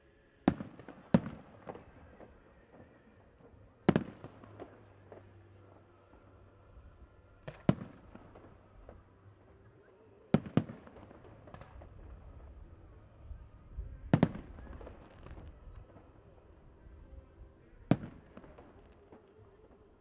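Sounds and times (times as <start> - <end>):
fireworks bangs: 0.5 - 6.1, 10.2 - 12.9, 13.9 - 16.5, 17.6 - 20.0.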